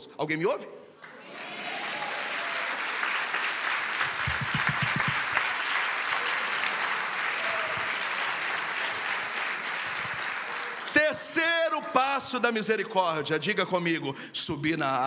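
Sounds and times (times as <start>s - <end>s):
congregation applauding: 1.0s - 11.9s
low thumps: 4.1s - 5.3s.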